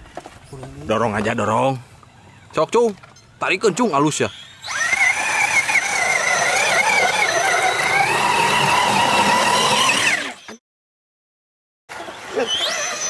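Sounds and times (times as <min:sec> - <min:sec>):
electric motor whining: 0:04.3 - 0:10.6.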